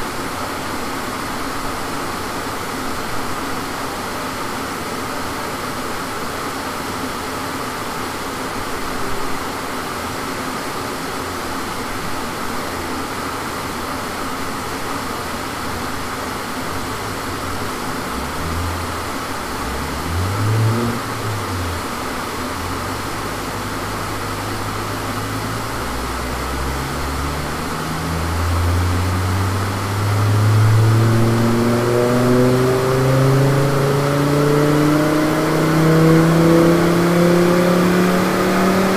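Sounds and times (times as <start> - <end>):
fan-like rush: 14.7 - 38.9
car engine revving under load: 15.0 - 38.9.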